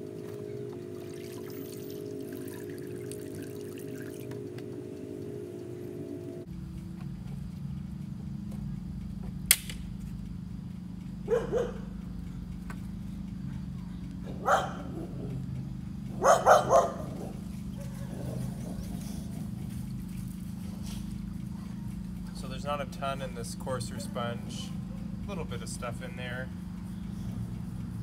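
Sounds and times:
low hum: 0:00.0 - 0:28.0
sharp click: 0:09.5 - 0:10.0
dog barking: 0:11.2 - 0:11.9, 0:14.2 - 0:15.4, 0:16.1 - 0:18.8.

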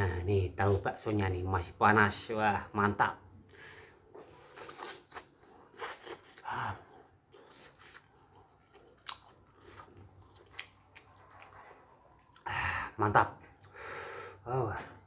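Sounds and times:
wet chewing mouth smacks: 0:04.5 - 0:12.4.

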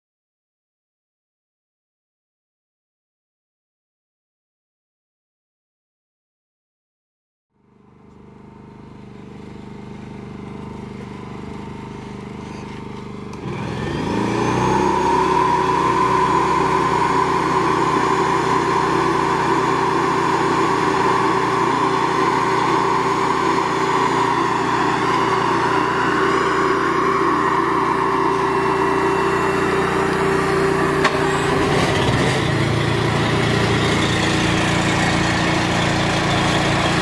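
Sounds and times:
small gasoline engine running: 0:07.6 - 0:37.0
motor whining drone: 0:11.6 - 0:37.0.

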